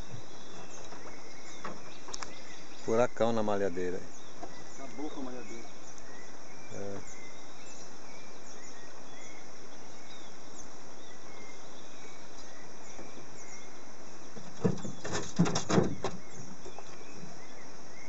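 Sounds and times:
faint bird chirps: 0.0 - 18.0
steady outdoor hiss: 0.0 - 18.0.

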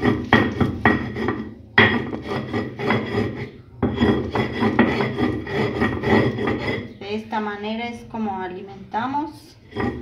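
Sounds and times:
stone roller grinding corn: 0.0 - 7.0, 9.6 - 10.0.

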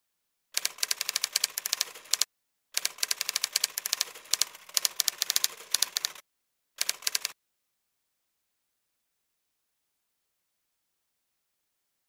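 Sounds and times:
typewriter keys clacking: 2.8 - 6.2.

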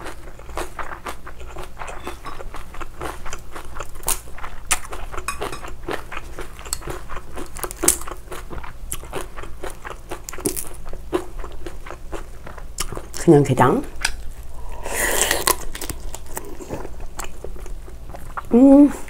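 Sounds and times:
wet chewing: 0.0 - 13.2, 14.0 - 18.5.

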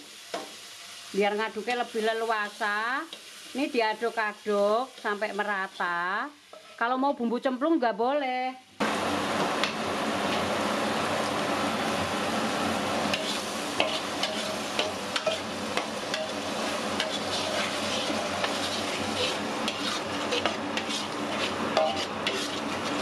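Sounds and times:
spice paste sizzling in a wok: 0.0 - 7.9, 8.8 - 23.0
metal spatula scraping a pan: 6.5 - 6.8, 13.1 - 23.0.

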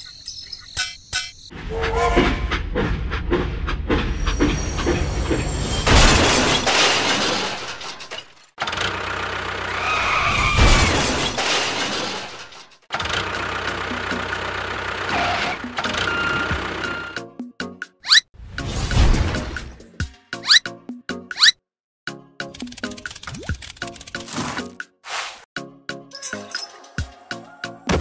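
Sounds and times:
train running on rails: 1.6 - 6.2
crashing and breaking: 5.9 - 8.6, 10.5 - 12.8.

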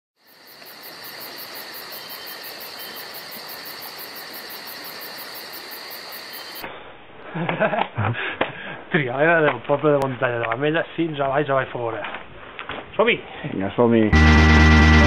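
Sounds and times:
insects chirping: 0.2 - 6.7.

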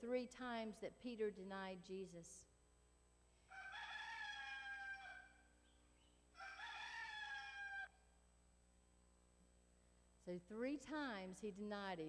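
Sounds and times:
rooster crowing: 3.5 - 5.5, 6.4 - 8.0.

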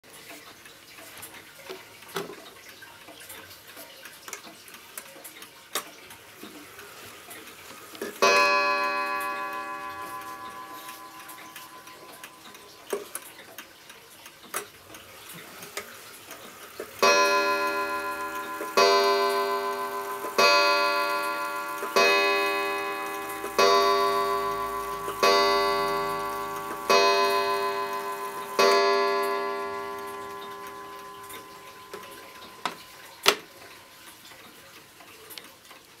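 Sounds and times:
clock ticking quietly: 0.1 - 36.0
mantel clock striking: 8.1 - 13.2, 16.8 - 34.0.

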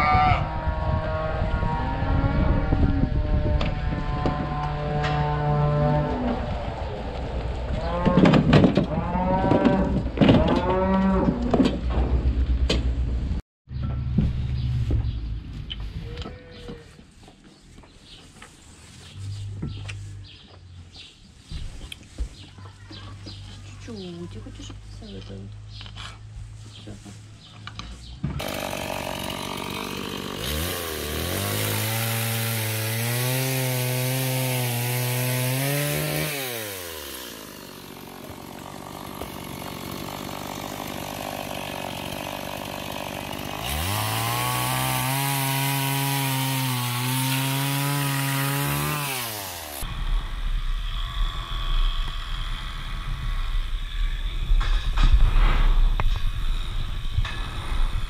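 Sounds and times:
low rumble with knocks: 2.2 - 15.7, 49.9 - 58.0
chainsaw cutting log: 28.4 - 58.0.

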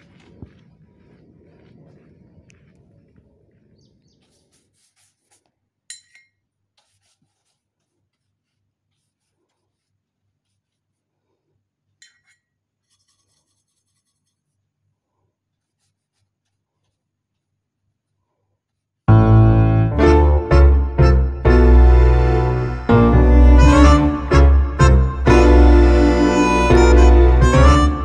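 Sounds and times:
light scratches: 4.2 - 5.6, 6.7 - 11.5, 12.1 - 18.9
paintbrush rubbing on paper: 4.2 - 5.7, 6.7 - 11.8, 12.8 - 19.0.

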